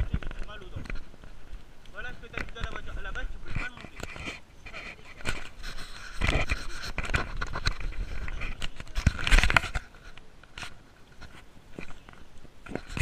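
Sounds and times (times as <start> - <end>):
camera rubbing and bumping: 0.0 - 13.0.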